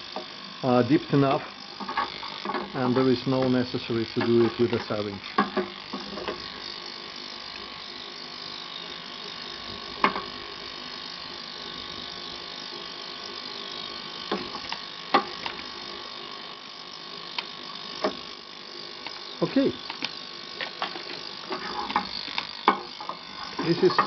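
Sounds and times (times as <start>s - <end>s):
ultrasonic cleaner buzzing: 0.0s - 24.0s.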